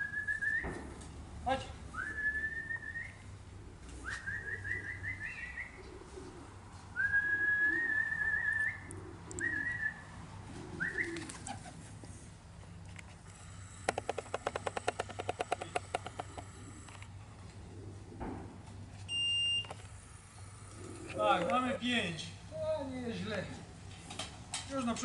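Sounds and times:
man whistling: 2.0s - 3.2s, 4.0s - 5.8s, 7.0s - 10.0s
pigeons cooing: 2.0s - 12.3s, 13.4s - 18.6s, 20.0s - 21.5s.

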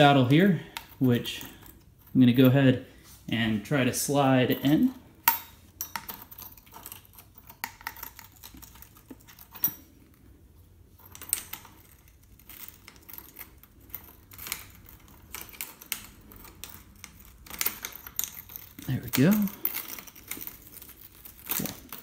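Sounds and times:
metal parts clicking: 4.4s - 10.2s, 11.0s - 22.0s.

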